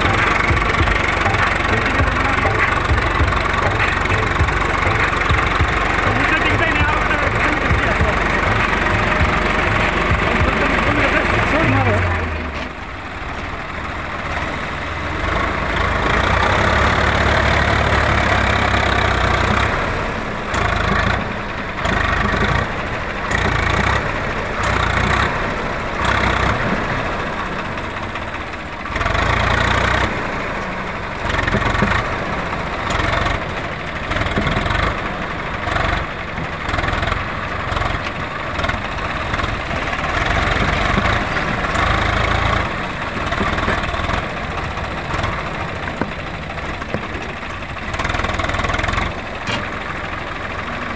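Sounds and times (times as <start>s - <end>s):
tractor diesel engine under load: 0.0s - 50.9s.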